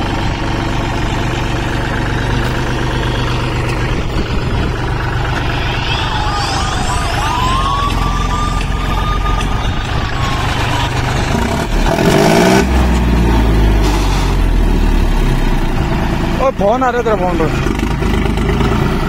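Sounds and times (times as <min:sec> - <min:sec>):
tractor diesel engine running: 0:00.0 - 0:19.0
thin siren-like gliding tone: 0:02.8 - 0:11.4
loud burst of noise: 0:03.0 - 0:12.8.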